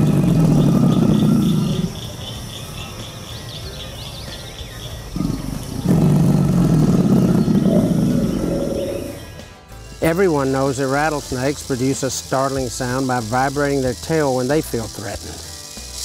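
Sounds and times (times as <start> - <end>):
alligator rumbling call: 0.0 - 9.4.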